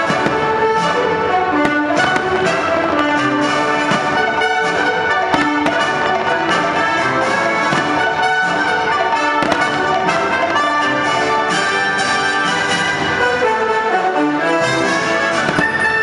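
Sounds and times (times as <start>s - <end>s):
firework bangs: 0.0s - 13.6s, 14.9s - 16.0s
orchestral music led by brass: 0.0s - 16.0s.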